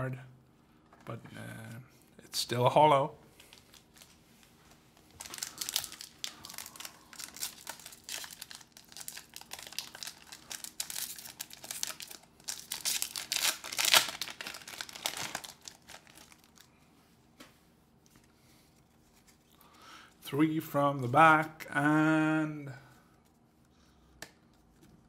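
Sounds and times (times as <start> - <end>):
foil wrapper crinkling and tearing: 3.4 - 4.2, 5.0 - 16.7.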